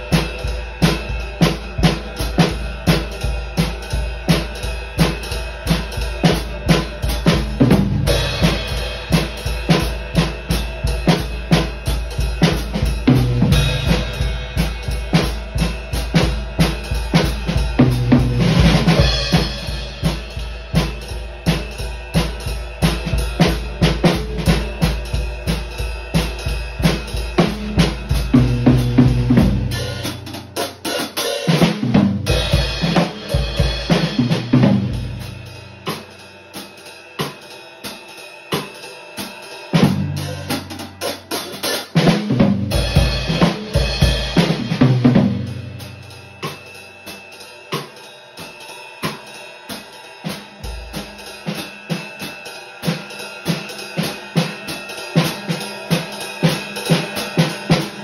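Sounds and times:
bass drum: 0:00.0 - 0:30.8, 0:31.6 - 0:36.0, 0:42.0 - 0:46.7
cymbals: 0:00.0 - 0:58.0.

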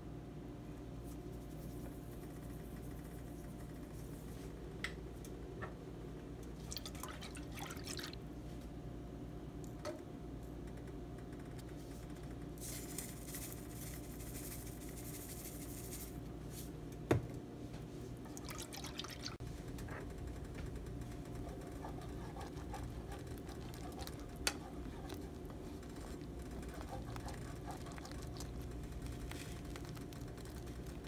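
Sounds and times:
whisk stirring sauce: 0:21.2 - 0:31.0.

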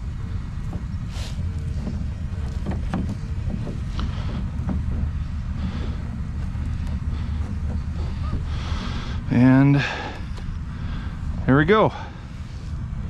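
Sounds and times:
low wind rumble on microphone: 0:00.0 - 0:13.0
cord being knotted taps and rustles: 0:01.5 - 0:09.3.

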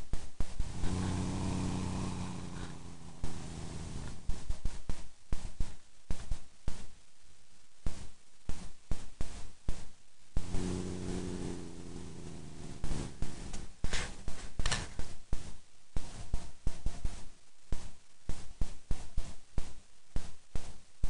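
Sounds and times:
cat purring: 0:00.4 - 0:05.5, 0:10.4 - 0:17.3
low drone: 0:00.6 - 0:04.4, 0:10.4 - 0:14.2.

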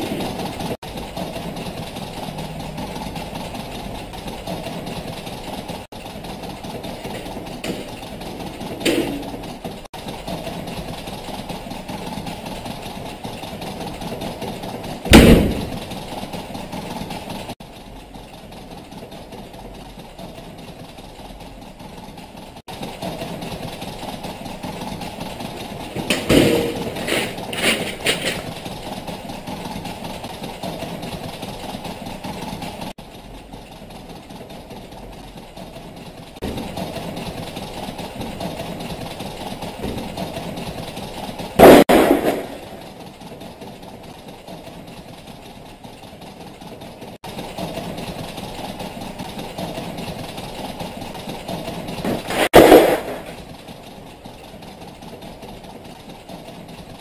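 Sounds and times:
sudden loud bangs: 0:15.1 - 0:15.9, 0:41.6 - 0:42.8.

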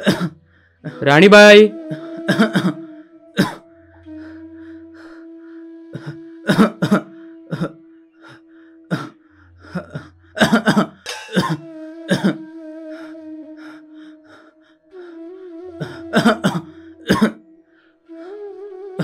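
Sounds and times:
man coughing hard: 0:00.0 - 0:00.4, 0:02.3 - 0:02.8, 0:03.4 - 0:03.6, 0:10.4 - 0:12.4, 0:16.2 - 0:17.4
droning film score: 0:00.0 - 0:18.6.

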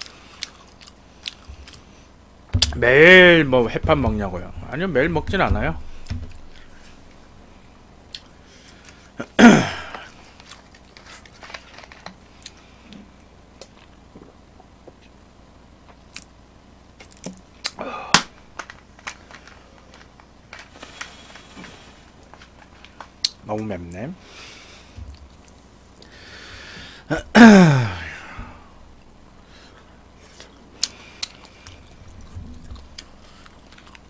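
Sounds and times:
chewing: 0:00.0 - 0:02.0, 0:30.2 - 0:34.0.

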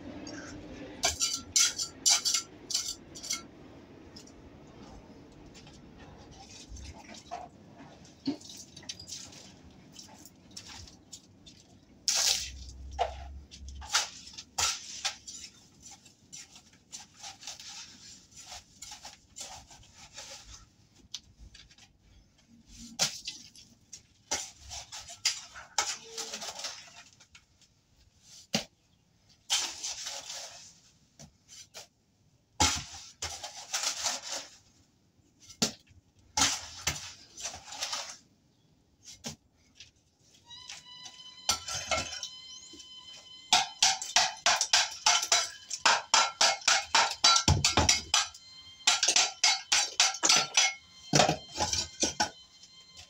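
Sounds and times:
trowel scraping a bucket: 0:12.0 - 0:20.7, 0:24.3 - 0:27.2, 0:29.4 - 0:30.8, 0:32.6 - 0:34.8, 0:36.4 - 0:38.3.

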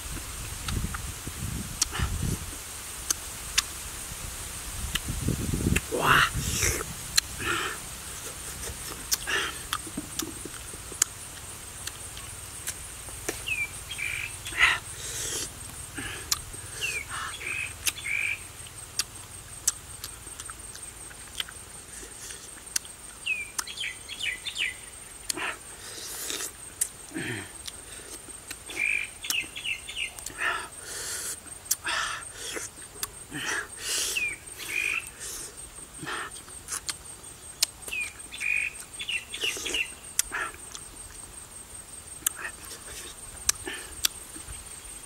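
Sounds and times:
high-pitched insect trill: 0:00.1 - 0:45.0
person chewing fruit: 0:01.8 - 0:02.4, 0:04.9 - 0:24.6, 0:25.2 - 0:29.6, 0:31.2 - 0:41.3, 0:42.2 - 0:44.8
birds chirping: 0:12.1 - 0:21.6, 0:22.7 - 0:25.6, 0:28.5 - 0:31.2, 0:31.8 - 0:41.3.

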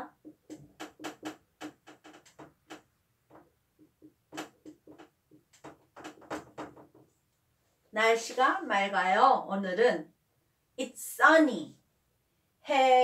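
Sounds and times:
marker writing on whiteboard: 0:00.0 - 0:07.2.

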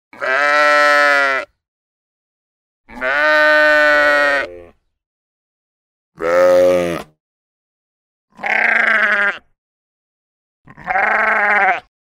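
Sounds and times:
sheep bleating: 0:00.1 - 0:01.5, 0:02.9 - 0:04.7, 0:06.2 - 0:07.1, 0:08.3 - 0:09.5, 0:10.7 - 0:11.9.

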